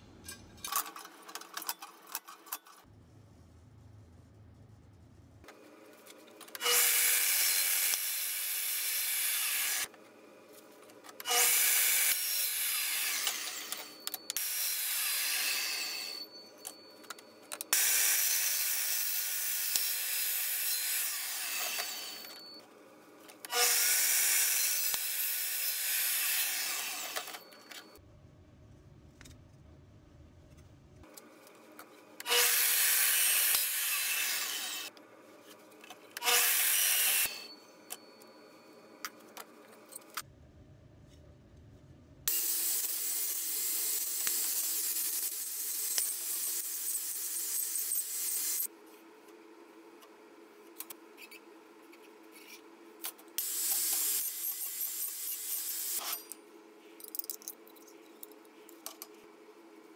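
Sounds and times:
metal saw cutting steel tubing: 6.5s - 9.9s, 11.2s - 16.3s, 17.7s - 22.6s, 23.4s - 28.0s, 32.2s - 34.9s, 36.2s - 37.6s, 42.3s - 48.7s, 53.4s - 56.4s.

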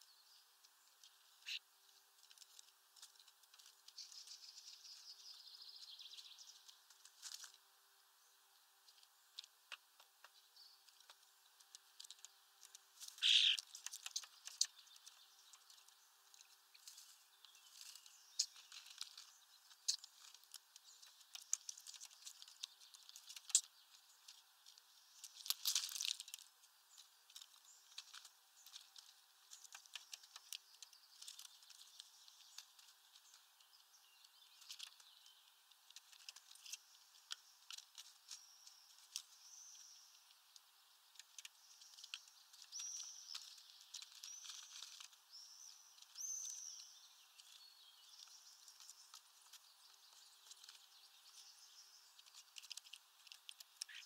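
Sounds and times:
bird calls: 0.0s - 7.6s, 8.2s - 54.0s
beaks tapping on feeder: 9.4s - 16.5s.

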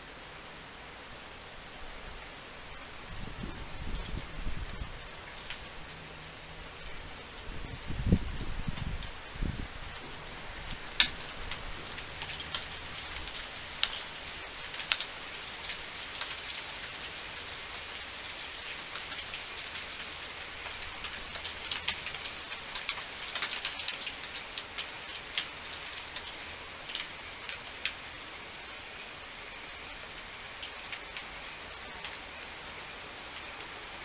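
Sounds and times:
rain hiss: 0.0s - 34.0s
drops dripping close by: 9.9s - 28.0s.

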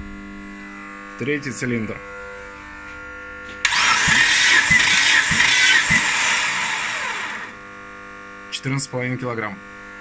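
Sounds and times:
engine cranking on starter motor: 3.6s - 7.6s.

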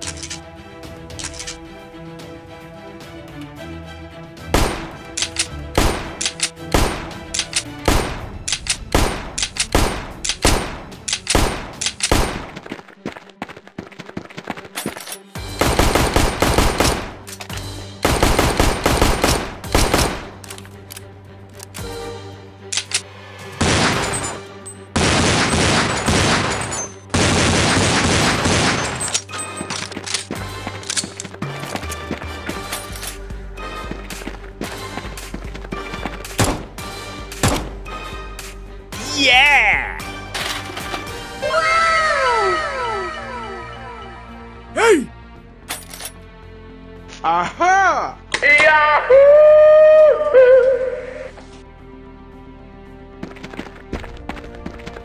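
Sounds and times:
background music: 0.0s - 55.0s.

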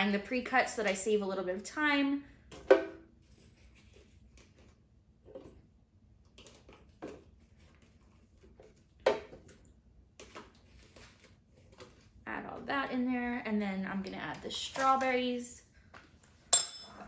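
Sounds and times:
spoon knocking and clinking: 16.6s - 17.0s.

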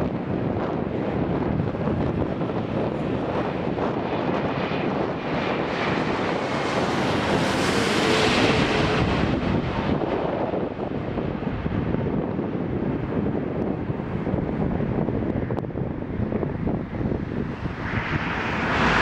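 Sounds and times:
airliner jet noise overhead: 0.0s - 19.0s
faint engine whine: 16.4s - 19.0s.

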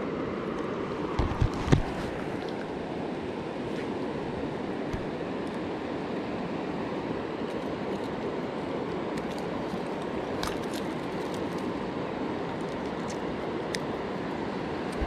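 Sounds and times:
river water over rocks: 0.0s - 15.0s.

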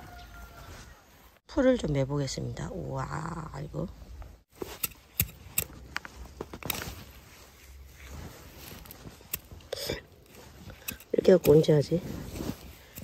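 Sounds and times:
rustle of leaves and dirt: 0.0s - 1.4s, 4.5s - 13.0s
hand hoe scraping soil: 4.5s - 13.0s.

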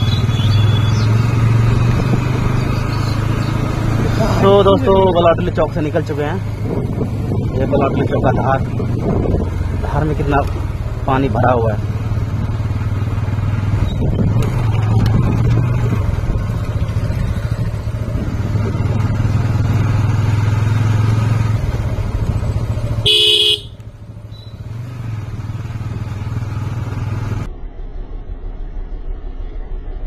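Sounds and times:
motorcycle engine running: 0.0s - 27.5s
motorcycle horn beep: 23.0s - 24.6s.

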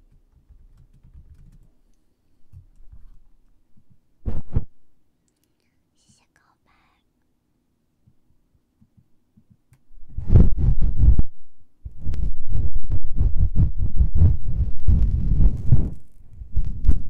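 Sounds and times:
rubbing on microphone: 2.8s - 3.3s, 4.2s - 4.8s, 10.0s - 17.0s.

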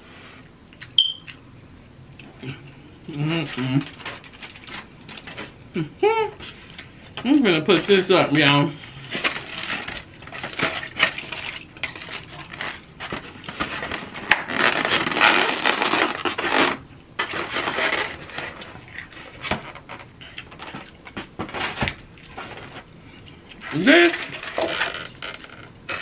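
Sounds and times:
rustling and scraping: 3.4s - 5.6s, 6.4s - 26.0s
styrofoam containers clicking and scraping: 7.6s - 22.9s, 23.6s - 26.0s.

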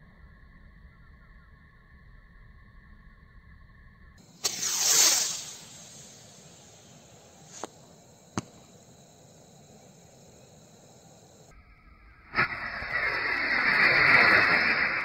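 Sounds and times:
firework rocket bursting pops: 4.2s - 9.4s, 12.3s - 15.0s
rocket igniting with loud hiss: 4.2s - 11.5s, 12.3s - 15.0s.

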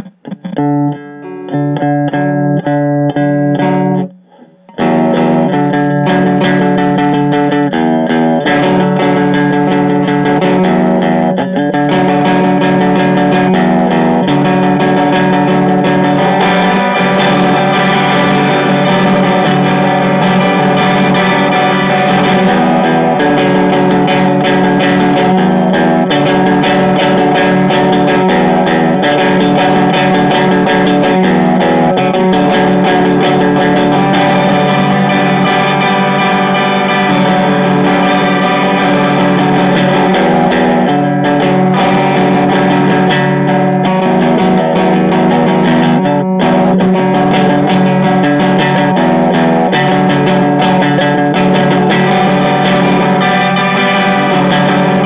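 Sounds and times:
instrumental rock guitars: 0.0s - 55.0s.

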